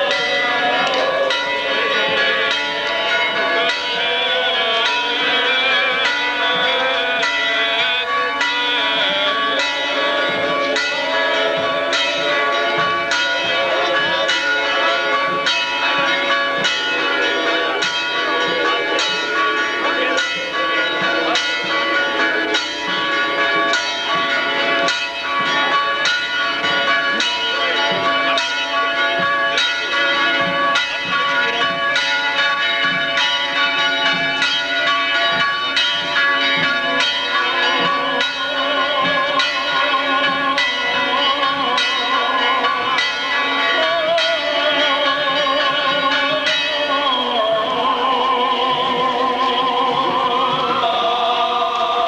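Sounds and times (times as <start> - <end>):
church bells pealing: 0.0 - 52.0.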